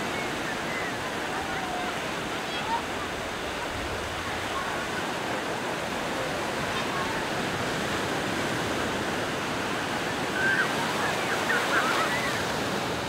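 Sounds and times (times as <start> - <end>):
surf washing onto beach: 0.0 - 13.0.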